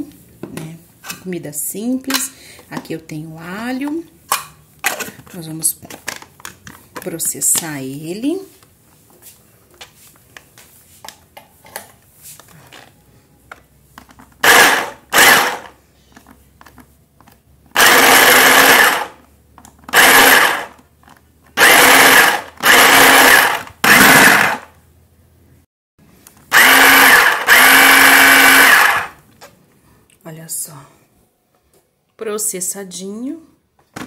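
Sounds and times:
electric chopper motor whining: 26.5s - 29.1s.

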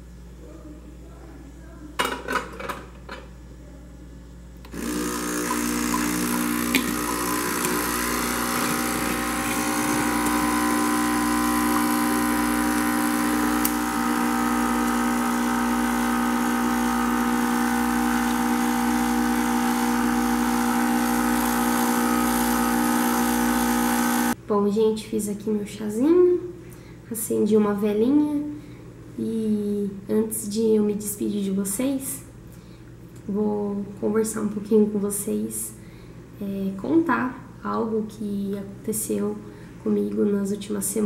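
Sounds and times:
drink machine buzzing hum: 4.6s - 24.4s.

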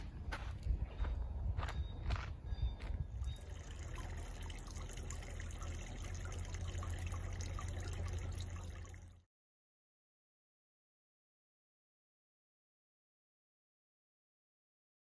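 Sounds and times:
water trickling into basin: 3.2s - 9.2s.

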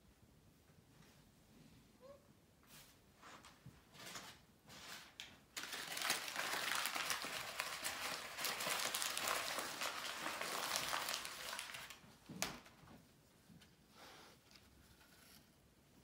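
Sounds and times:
paper crinkling and rustling: 3.4s - 12.9s.

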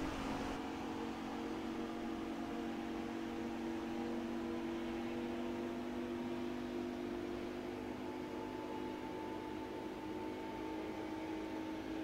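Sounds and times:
diesel engine droning: 0.0s - 6.4s.

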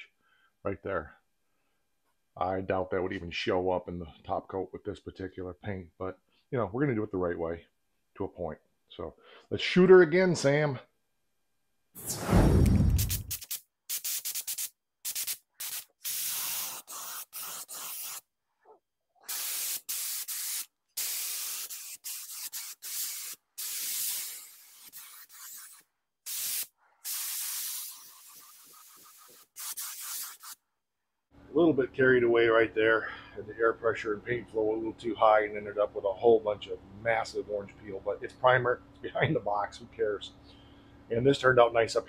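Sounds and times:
spray gun hissing bursts: 13.0s - 18.2s, 19.3s - 30.6s.

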